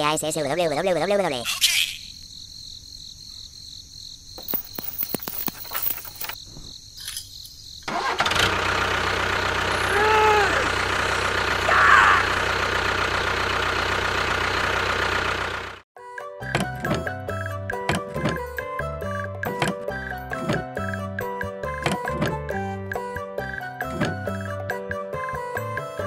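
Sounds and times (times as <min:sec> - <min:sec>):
small chain clicking: 0:04.4 - 0:06.4
tractor engine running: 0:07.8 - 0:15.8.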